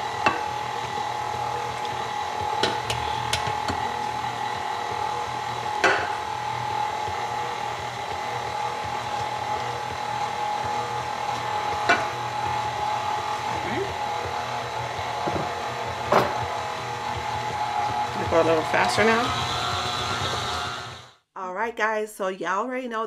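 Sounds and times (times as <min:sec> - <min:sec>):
stand mixer motor whine: 0:00.0 - 0:21.2
mixer clicks: 0:01.7 - 0:04.0.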